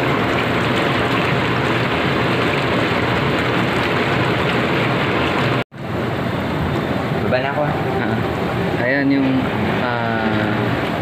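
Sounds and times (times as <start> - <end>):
churning bubbling water jets: 0.0 - 11.0.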